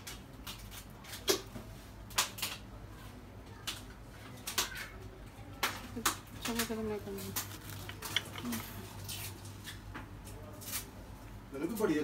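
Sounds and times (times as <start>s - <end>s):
bowl clicking and clinking on stand: 6.0s - 8.8s.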